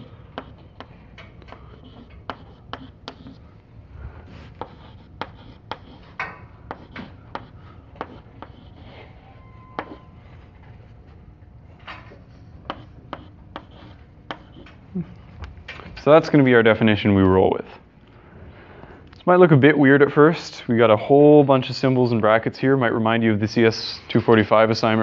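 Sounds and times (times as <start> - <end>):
chalk scratching on blackboard: 0.0 - 0.9, 1.5 - 3.4, 4.2 - 10.2, 12.6 - 14.8.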